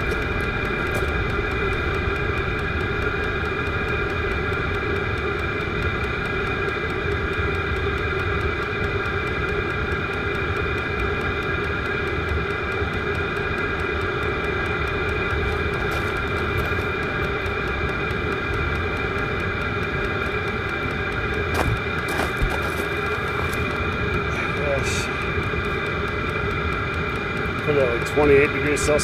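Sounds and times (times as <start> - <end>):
air heater running with fan hum: 0.0 - 29.0
high-pitched whine: 0.0 - 29.0.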